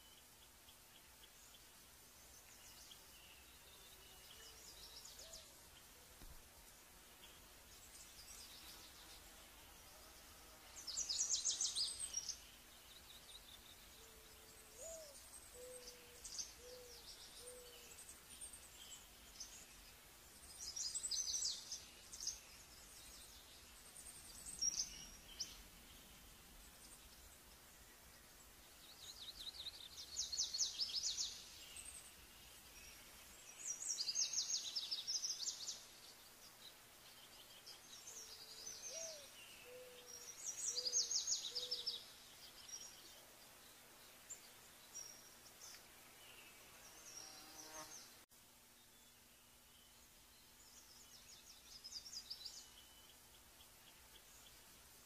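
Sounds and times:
songbirds trilling: 0:00.0 - 0:48.2
bird hooting low: 0:14.0 - 0:17.9, 0:38.9 - 0:41.9.

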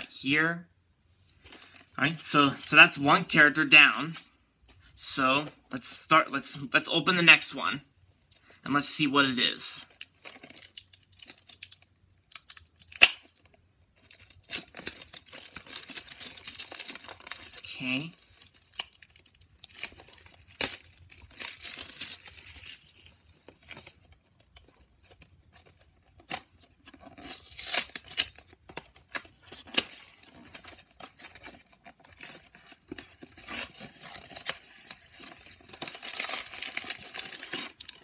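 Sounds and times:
plastic wrap and cardboard crinkling: 0:08.8 - 0:38.0.

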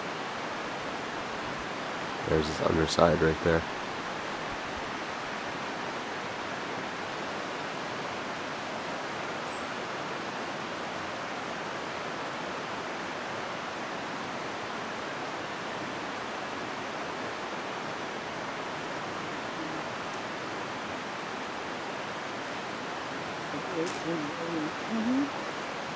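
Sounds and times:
steady outdoor rushing noise: 0:00.0 - 0:09.3.

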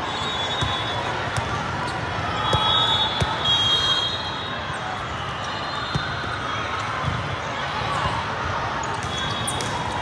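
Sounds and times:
whistle: 0:00.0 - 0:01.1, 0:02.4 - 0:04.7
volleyballs hit and bouncing: 0:00.6 - 0:03.4, 0:05.9 - 0:10.0.

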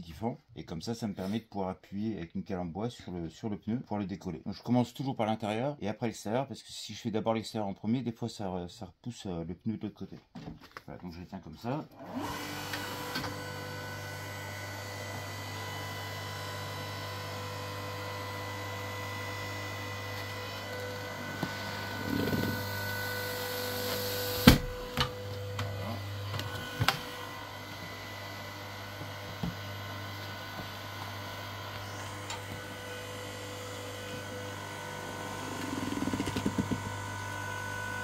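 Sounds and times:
motor and hydraulic pump hum: 0:12.0 - 0:38.0.

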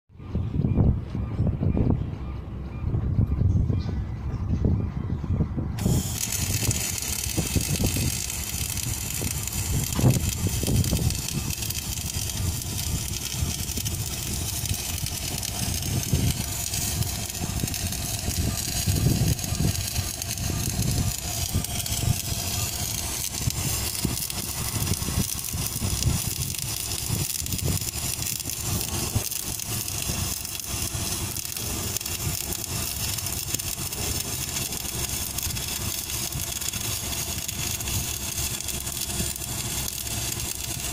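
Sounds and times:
welding arc crackling and hissing: 0:05.8 - 0:40.9.

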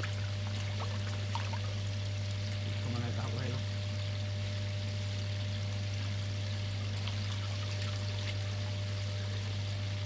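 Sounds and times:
constant low hum: 0:00.0 - 0:10.0
pond water trickling: 0:00.0 - 0:10.0.

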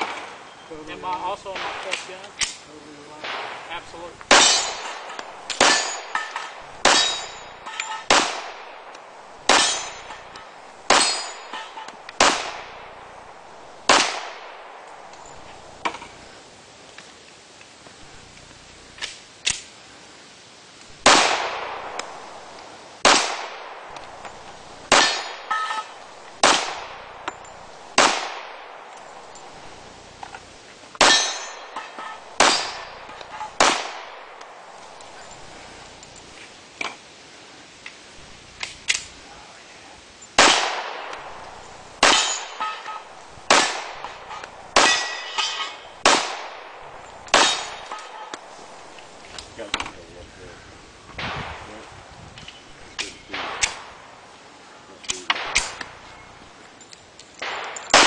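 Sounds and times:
bullet ringing on steel: 0:04.3 - 0:08.1, 0:09.5 - 0:11.9, 0:24.2 - 0:26.0, 0:26.9 - 0:27.8, 0:31.0 - 0:33.6, 0:41.6 - 0:46.0, 0:47.0 - 0:48.5
handgun shots: 0:47.3 - 0:48.5, 0:55.0 - 0:55.9.

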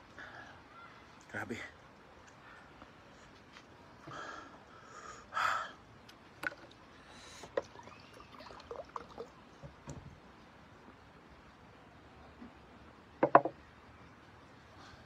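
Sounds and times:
drink pouring into glass: 0:07.6 - 0:09.4.

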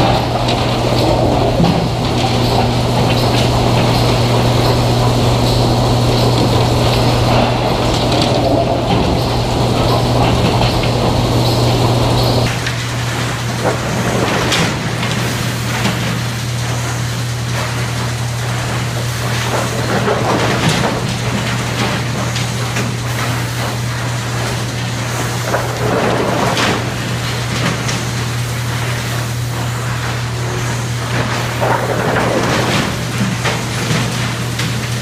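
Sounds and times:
wooden boards clattering: 0:00.0 - 0:12.6, 0:18.7 - 0:35.0
low machine hum: 0:00.0 - 0:35.0.

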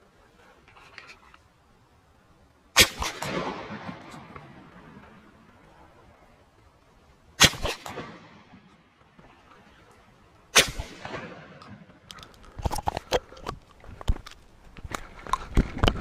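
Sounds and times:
shotgun shots echoing: 0:02.8 - 0:05.0, 0:07.4 - 0:08.8, 0:10.5 - 0:12.1.

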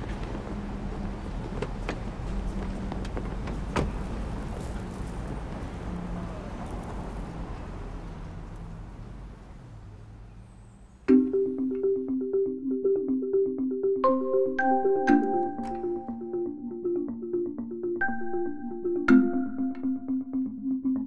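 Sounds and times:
traffic hum: 0:00.0 - 0:12.3
marimba music: 0:11.1 - 0:21.0.

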